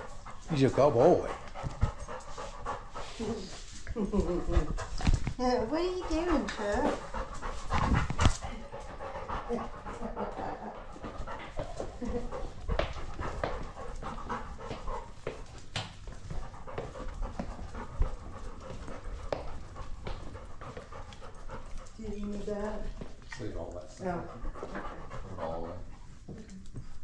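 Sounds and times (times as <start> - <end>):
dog panting: 0.0 - 27.0.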